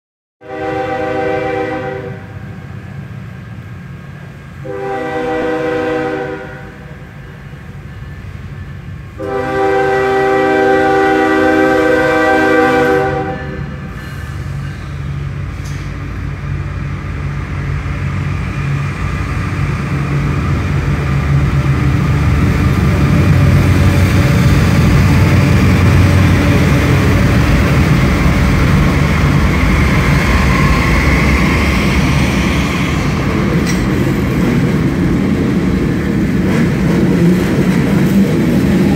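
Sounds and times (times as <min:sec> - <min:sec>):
locomotive horn blasts: 0:00.4 - 0:02.5, 0:04.6 - 0:07.0, 0:09.2 - 0:13.9
locomotive rumble: 0:00.5 - 0:38.9
freight cars rolling past: 0:02.6 - 0:38.9.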